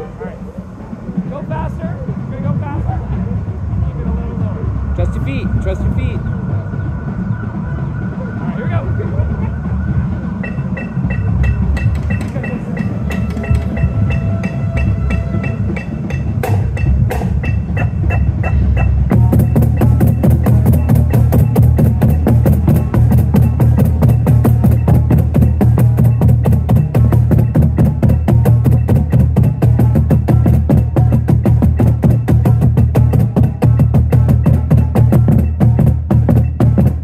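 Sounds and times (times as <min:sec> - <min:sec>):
marching bass drums: 0:00.0 - 0:37.0
metronome clicking: 0:10.8 - 0:14.6.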